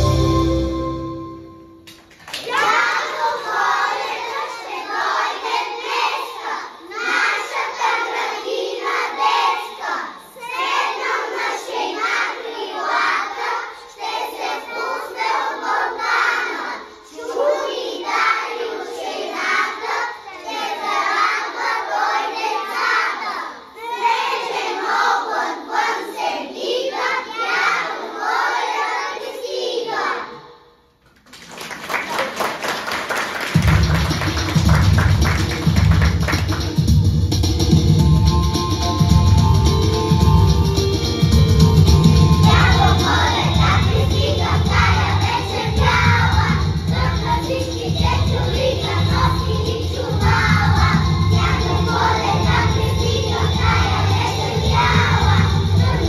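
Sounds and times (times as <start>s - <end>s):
children singing together: 2.4s - 30.9s, 38.3s - 56.0s.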